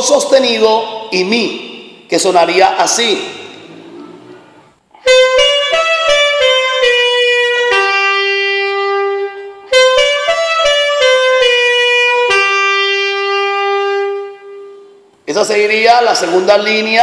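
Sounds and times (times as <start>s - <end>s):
alto saxophone melody: 3.6s - 15.0s.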